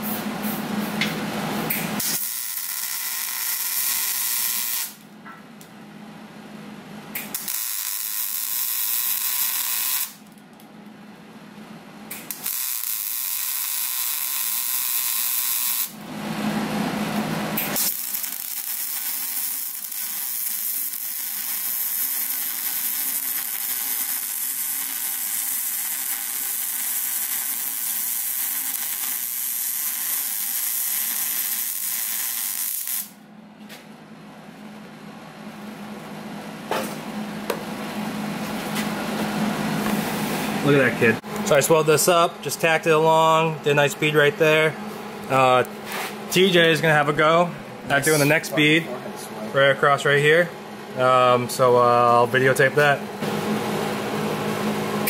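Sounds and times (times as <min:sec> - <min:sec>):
welding arc hissing and crackling: 0:01.7 - 0:05.0, 0:07.2 - 0:10.3, 0:12.2 - 0:16.0, 0:17.6 - 0:33.2.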